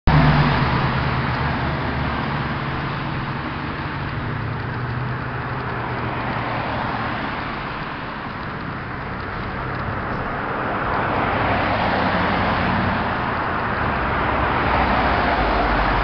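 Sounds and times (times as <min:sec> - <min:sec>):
road traffic engine noise: 0:00.1 - 0:16.0.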